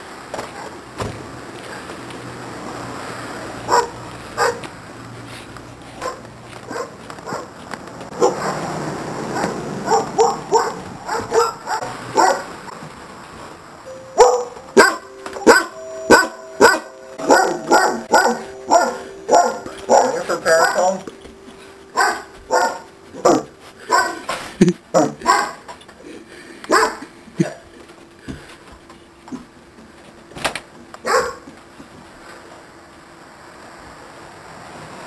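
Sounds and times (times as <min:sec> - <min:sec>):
dog barking: 0:03.7 - 0:04.7, 0:06.0 - 0:07.5, 0:08.2 - 0:08.6, 0:09.3 - 0:12.5, 0:14.2 - 0:20.9, 0:22.0 - 0:24.3, 0:25.0 - 0:25.6, 0:26.7 - 0:27.6, 0:31.0 - 0:31.5.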